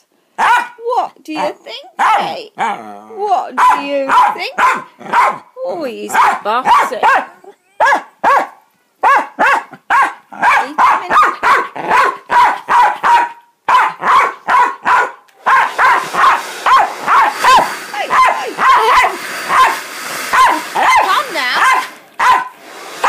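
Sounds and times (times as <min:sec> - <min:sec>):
dog barking: 0:00.4 - 0:00.8, 0:01.4 - 0:02.4, 0:03.6 - 0:05.5, 0:06.1 - 0:22.6
hair dryer hissing: 0:15.4 - 0:23.0.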